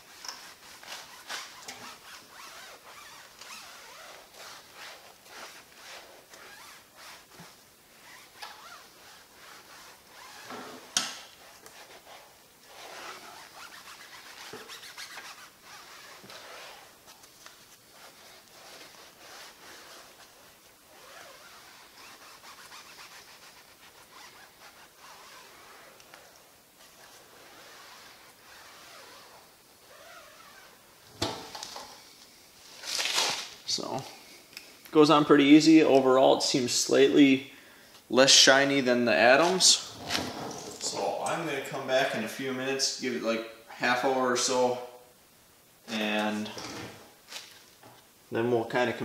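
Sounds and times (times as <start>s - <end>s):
pad scrubbing tire rubber: 0.0s - 17.1s.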